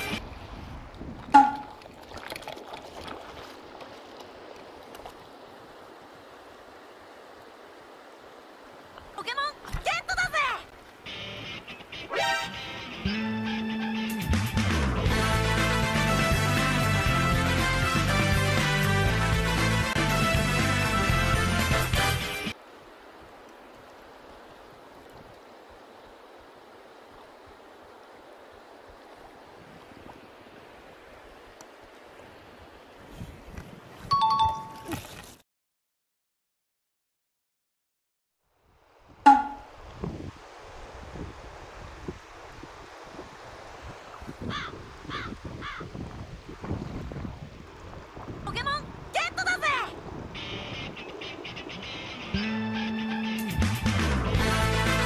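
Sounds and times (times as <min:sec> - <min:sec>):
stream water over rocks: 0:00.0 - 0:11.2, 0:22.2 - 0:33.1, 0:39.3 - 0:45.0
loud pitched blip: 0:01.4 - 0:01.8, 0:39.3 - 0:39.7.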